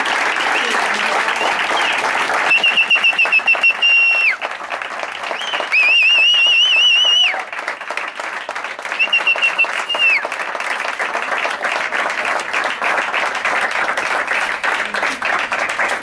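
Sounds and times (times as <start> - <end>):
audience applauding: 0.0 - 16.0
warbling whistle: 5.4 - 7.4.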